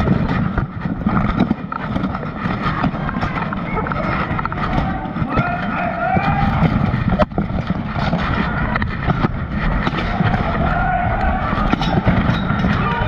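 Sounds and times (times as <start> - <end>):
muffled armour rumble and clatter: 0.0 - 13.0
people shouting: 2.5 - 7.2, 9.6 - 13.0.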